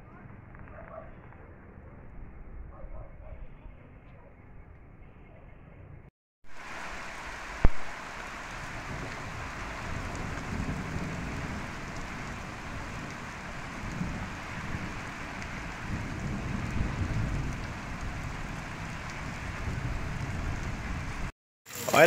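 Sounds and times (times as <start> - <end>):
floodwater running over road: 6.5 - 22.0
heavy rain hissing: 6.5 - 22.0.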